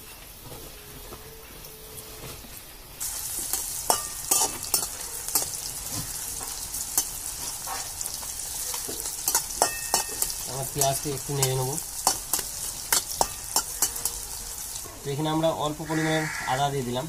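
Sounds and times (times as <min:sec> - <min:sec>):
onions sizzling in hot oil: 0:02.6 - 0:17.0
metal spatula scraping pan: 0:03.1 - 0:08.1.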